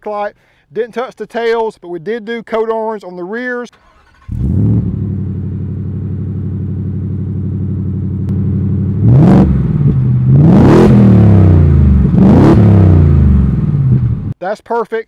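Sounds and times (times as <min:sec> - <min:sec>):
car engine idling: 0:03.8 - 0:14.4
car engine revving: 0:03.8 - 0:14.4.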